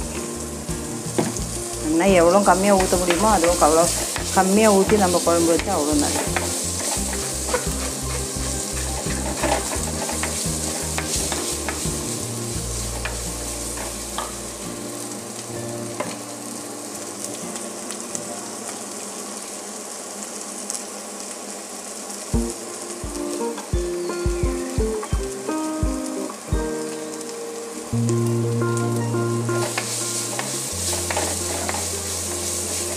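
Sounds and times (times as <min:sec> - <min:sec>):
onions sizzling in oil: 0:00.0 - 0:32.9
wooden spoon stirring and scraping: 0:02.2 - 0:14.0, 0:29.8 - 0:32.9.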